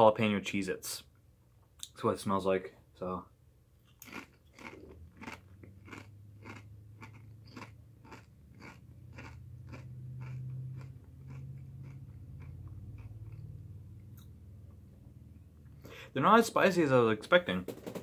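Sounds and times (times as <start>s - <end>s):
person chewing crunchy chip: 3.9s - 13.6s.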